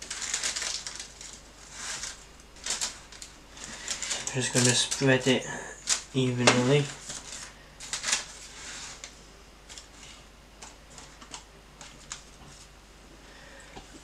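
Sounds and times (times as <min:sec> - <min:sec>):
baking paper rustling: 0:00.0 - 0:12.8.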